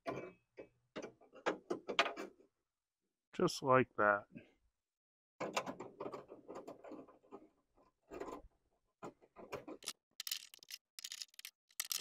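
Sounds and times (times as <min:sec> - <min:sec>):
hands clicking on latch parts: 0:09.0 - 0:12.0.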